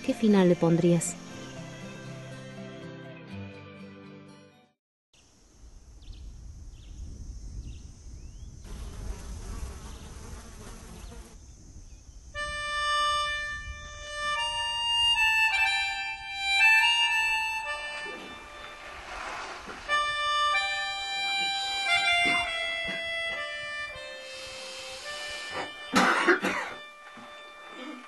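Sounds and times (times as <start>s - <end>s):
insects buzzing: 0.1s - 2.3s, 5.2s - 28.0s
music with long held notes: 12.6s - 18.9s, 19.9s - 26.0s
rush of hiss: 18.4s - 20.1s, 24.0s - 25.7s.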